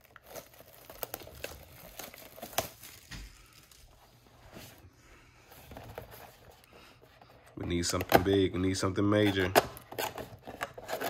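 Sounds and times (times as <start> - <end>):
plastic wrapping crinkling and tearing: 0.0 - 4.4.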